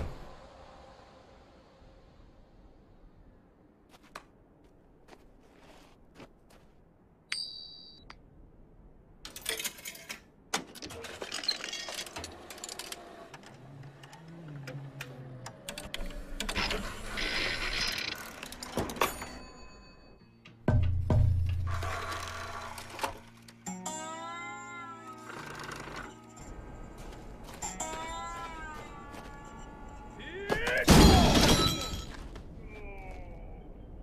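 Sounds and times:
short high ding: 7.3s - 8.0s.

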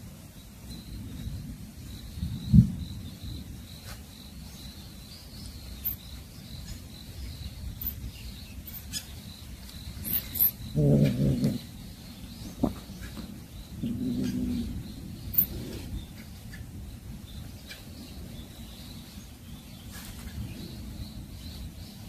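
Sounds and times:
insects trilling: 0.0s - 22.0s.

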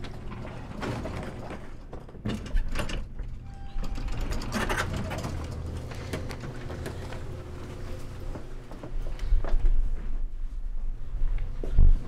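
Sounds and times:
lift door clicks and rattle: 0.0s - 7.4s
lift mechanical hum: 0.0s - 12.0s.

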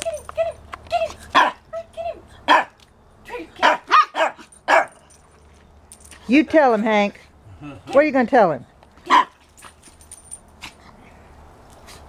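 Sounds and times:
small dogs barking: 1.3s - 1.7s, 2.4s - 2.8s, 3.6s - 5.1s, 9.0s - 9.4s.

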